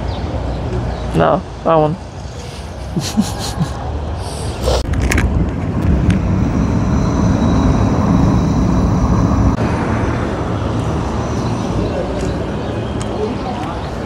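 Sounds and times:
quiet street sound: 0.0s - 14.0s
wind and road rumble: 0.0s - 14.0s.

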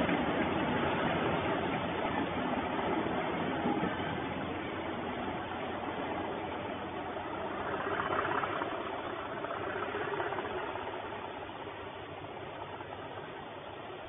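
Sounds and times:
diesel locomotive engines running: 0.0s - 14.0s.

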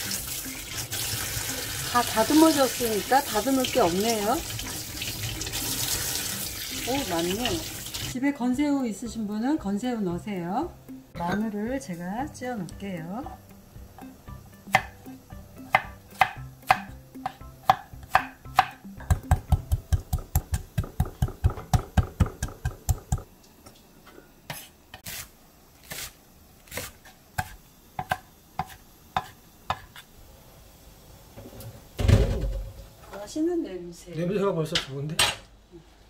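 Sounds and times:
knife chopping on wooden board: 14.7s - 15.0s, 15.7s - 23.2s, 26.7s - 30.0s.

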